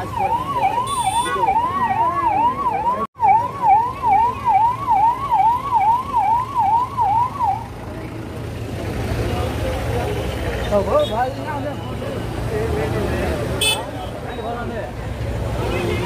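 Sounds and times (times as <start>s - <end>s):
police siren wailing: 0.0s - 7.8s
road noise: 0.0s - 16.0s.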